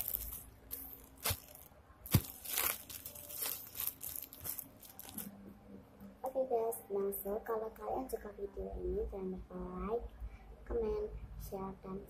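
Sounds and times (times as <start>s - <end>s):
plastic bag crinkling: 0.0s - 5.4s.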